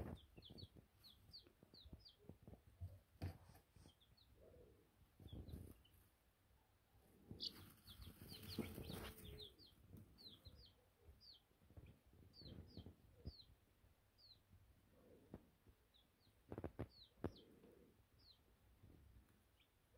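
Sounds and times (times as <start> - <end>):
baby chicks peeping: 0.0 - 19.9
rustling: 7.3 - 10.5.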